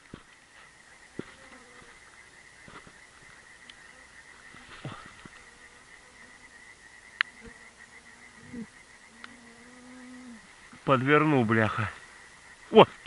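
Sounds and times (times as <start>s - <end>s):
faint clicks: 3.6s - 3.8s
mosquito whining: 7.4s - 10.5s.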